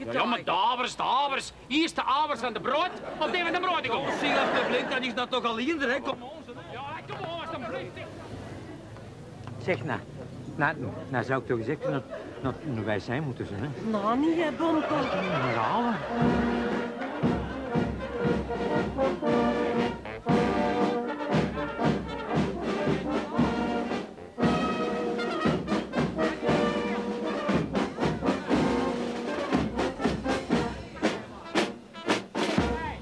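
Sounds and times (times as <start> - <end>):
brass band playing: 14.0 - 33.0
drum strokes: 15.4 - 33.0.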